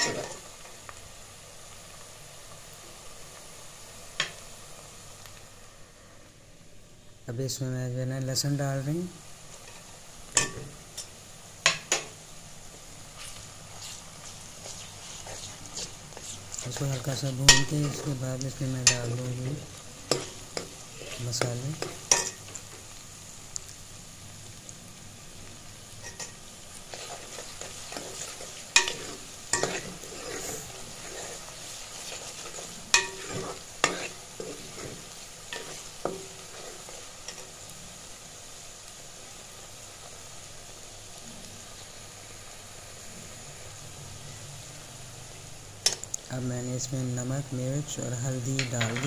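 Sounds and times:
onions sizzling in a pot: 0:00.0 - 0:49.0
steel spoon scraping and clinking: 0:15.4 - 0:19.3, 0:20.1 - 0:22.6, 0:26.0 - 0:37.5.

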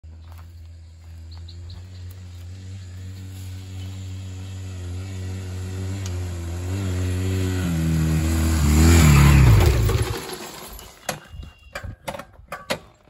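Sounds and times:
motorcycle engine passing by: 0:00.6 - 0:11.0.

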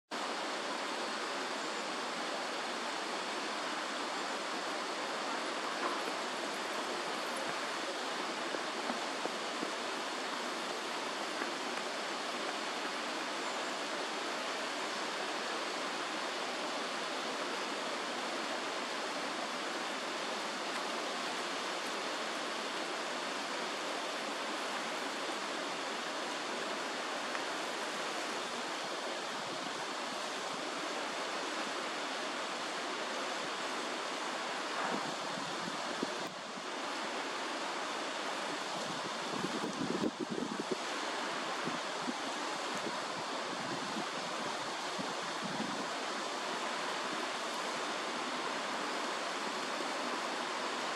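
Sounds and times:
steady rushing noise: 0:32.5 - 0:48.4.

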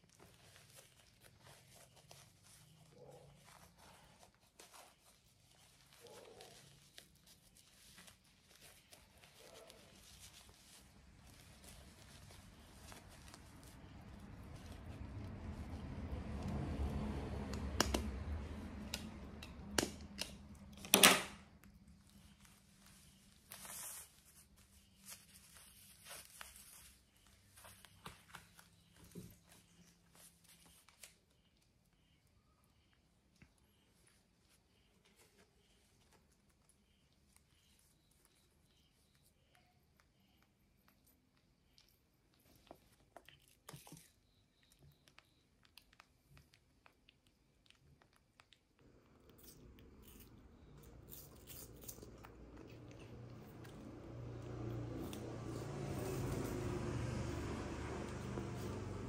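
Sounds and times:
towel rubbing rustle: 0:00.0 - 0:16.5, 0:22.0 - 0:31.2, 0:53.5 - 0:59.0.

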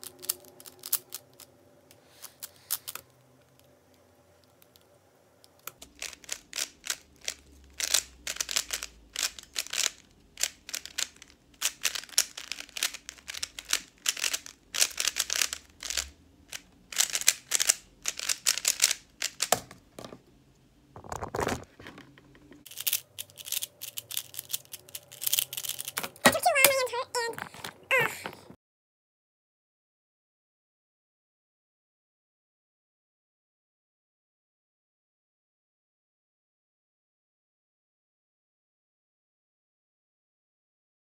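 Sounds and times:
speed cube clicking: 0:00.0 - 0:01.5, 0:02.3 - 0:03.1, 0:05.5 - 0:19.7, 0:22.7 - 0:26.2.

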